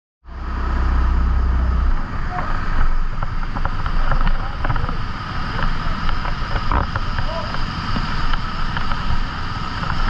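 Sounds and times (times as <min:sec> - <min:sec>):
kart engine running: 0:00.3 - 0:10.0.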